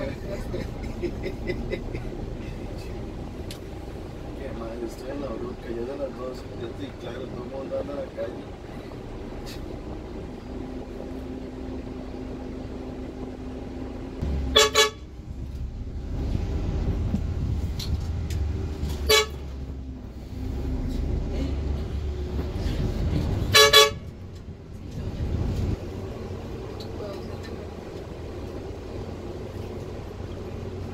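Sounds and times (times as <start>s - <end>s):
vehicle engine low rumble: 0.0s - 30.9s
vehicle horn short beeps: 14.6s - 15.0s, 19.1s - 19.4s, 23.5s - 24.0s.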